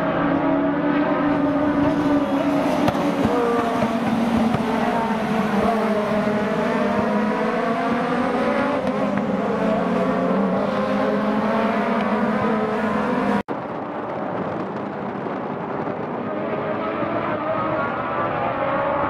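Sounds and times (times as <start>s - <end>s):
racing cars passing at high revs: 0.0s - 19.0s.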